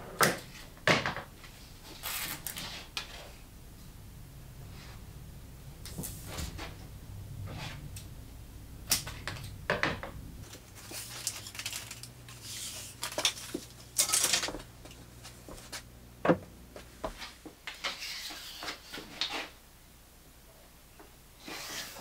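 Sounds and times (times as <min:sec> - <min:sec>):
cable rustling: 0:08.8 - 0:15.9.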